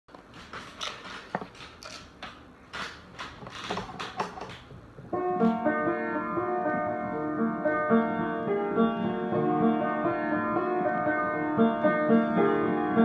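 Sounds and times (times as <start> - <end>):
rustling and knocking: 0.1 - 5.7
piano playing: 4.9 - 13.0.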